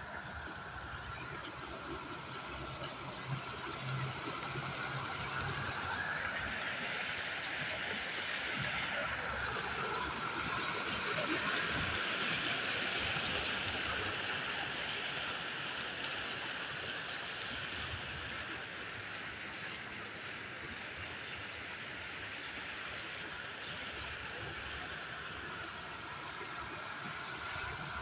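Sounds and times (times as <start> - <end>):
floodwater rushing: 1.6 - 28.0.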